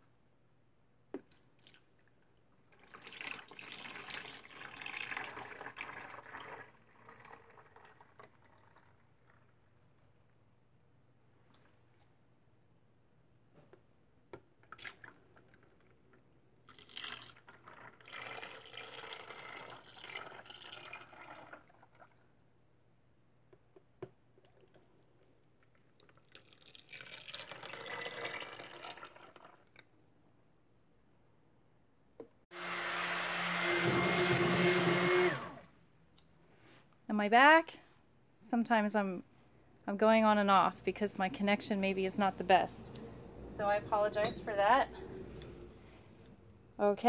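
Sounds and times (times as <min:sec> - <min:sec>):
liquid pouring and splashing: 0:01.2 - 0:09.8, 0:14.6 - 0:16.0, 0:16.6 - 0:22.5, 0:24.3 - 0:29.8
stick blender whining: 0:32.5 - 0:35.7.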